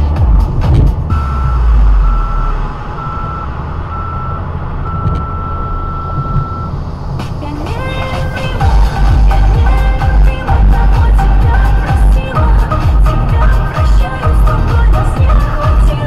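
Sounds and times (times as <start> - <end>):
low rumble: 0.0 - 16.0
electronic beeps: 1.1 - 6.8.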